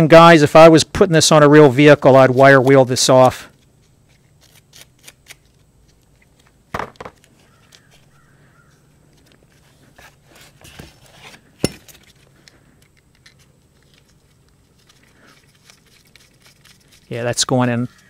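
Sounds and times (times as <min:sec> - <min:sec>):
small metal parts clicking: 0:11.6 - 0:18.0.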